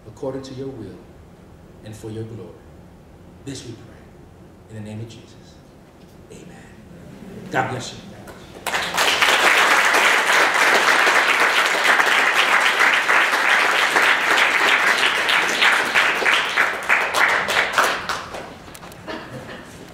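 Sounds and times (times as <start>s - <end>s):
audience applauding: 8.5s - 19.2s.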